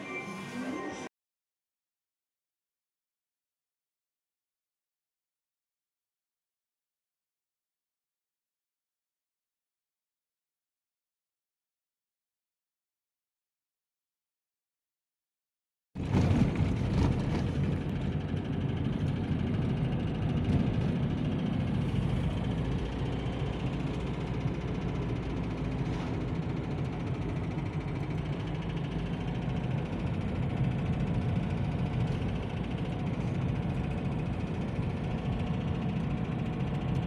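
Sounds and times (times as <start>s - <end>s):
car engine hum: 16.0s - 37.0s
road noise: 16.0s - 37.0s.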